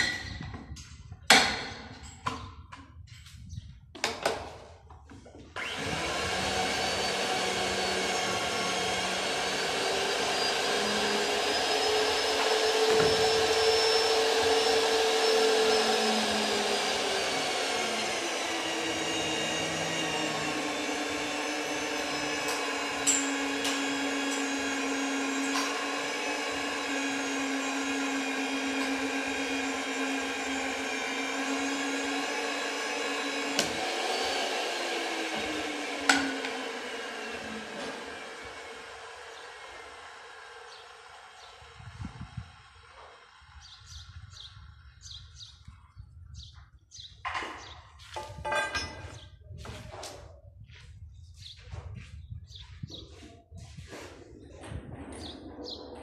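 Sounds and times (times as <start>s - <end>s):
pipe threading machine whining: 5.6s - 45.2s.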